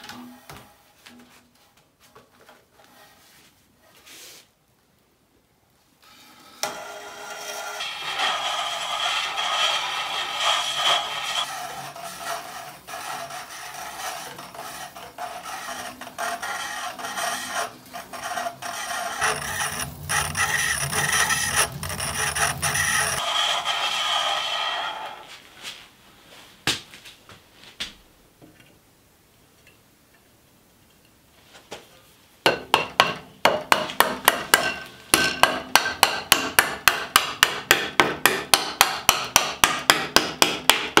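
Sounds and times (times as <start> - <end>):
hand-cranked band saw running: 6.8 - 25.2.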